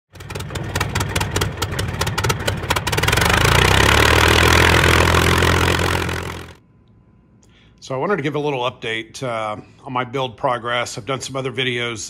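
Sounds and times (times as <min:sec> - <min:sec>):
aircraft engine starting and running: 0:00.1 - 0:06.6.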